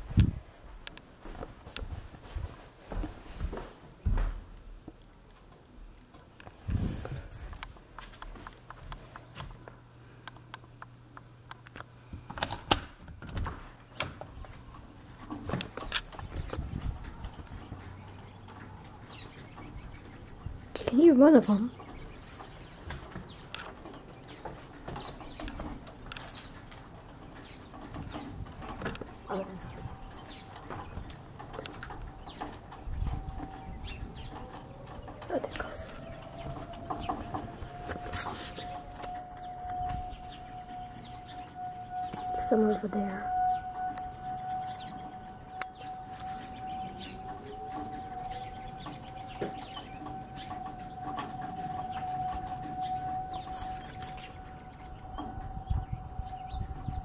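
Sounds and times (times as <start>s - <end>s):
faint outdoor background: 0.0s - 57.0s
small birds chirping: 13.8s - 57.0s
distant warning siren steady tone: 14.1s - 57.0s.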